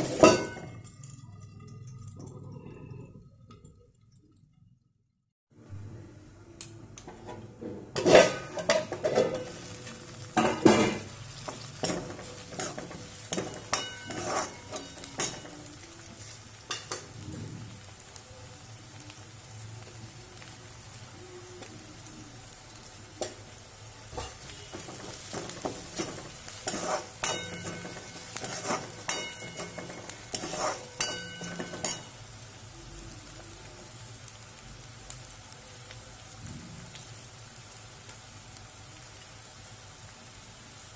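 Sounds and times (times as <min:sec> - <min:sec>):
spoon scraping and clinking pan: 0:00.0 - 0:00.8, 0:08.0 - 0:09.8, 0:10.4 - 0:15.6, 0:24.2 - 0:32.2
vegetables sizzling in oil: 0:00.0 - 0:01.5, 0:05.7 - 0:40.9.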